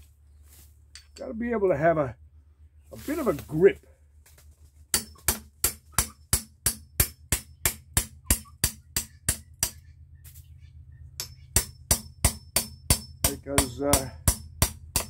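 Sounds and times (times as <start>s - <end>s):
hammer striking a chisel: 4.9s - 9.9s, 11.2s - 15.0s.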